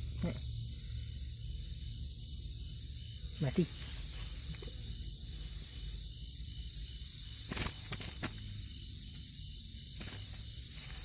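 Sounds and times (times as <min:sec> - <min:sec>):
night insects chirring: 0:00.0 - 0:11.0
dry grass rustling: 0:03.3 - 0:08.8, 0:09.8 - 0:11.0.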